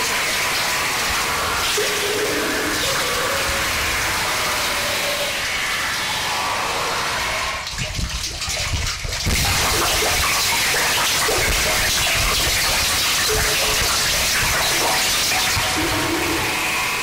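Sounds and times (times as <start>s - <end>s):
harsh noise music: 12.2s - 17.0s.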